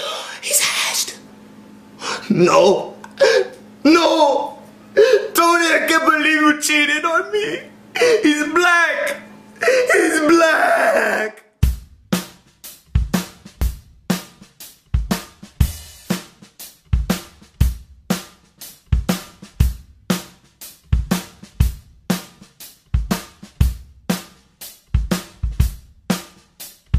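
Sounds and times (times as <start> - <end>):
drum kit playing a steady beat: 11.6 - 26.9.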